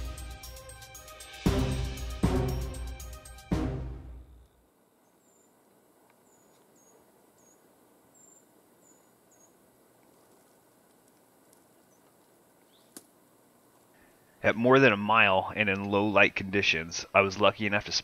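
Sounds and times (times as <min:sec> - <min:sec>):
faint background hiss: 0:04.2 - 0:18.0.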